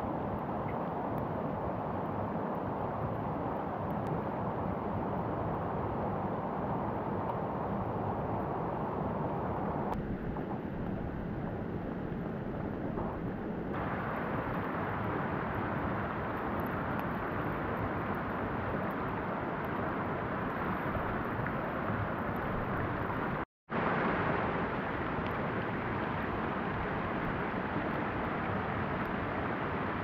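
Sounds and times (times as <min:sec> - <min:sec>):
wind on microphone: 0:04.2 - 0:23.4.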